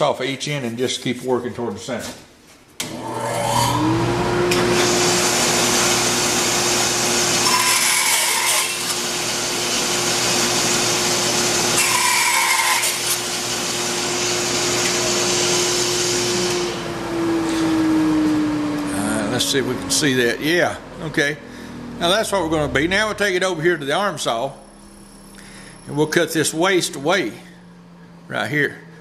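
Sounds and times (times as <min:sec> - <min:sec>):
bandsaw running: 0:02.8 - 0:23.5
bandsaw cutting wood whine: 0:02.8 - 0:27.4.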